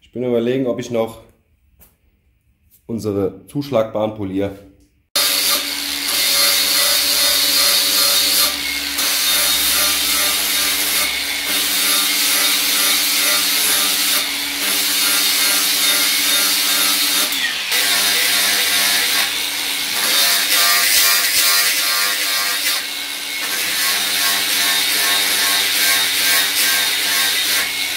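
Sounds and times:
angle grinder grinding steel: 5.2 - 27.9.

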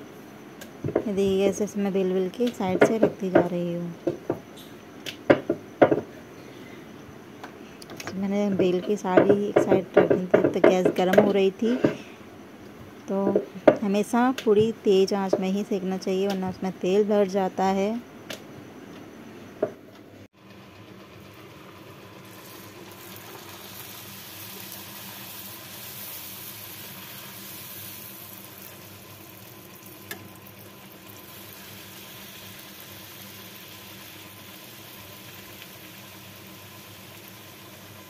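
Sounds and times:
knock: 5.3 - 6.1, 9.2 - 11.2
deep-frying in hot oil: 20.4 - 38.0.

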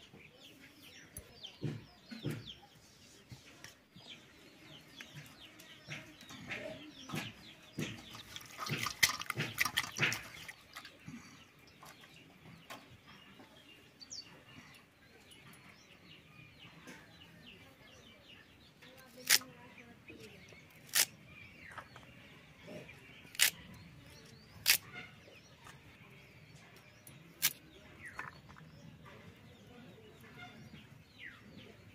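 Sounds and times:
chickens clucking: 0.0 - 17.6
stalks splashing in bowl of water: 7.2 - 11.0.

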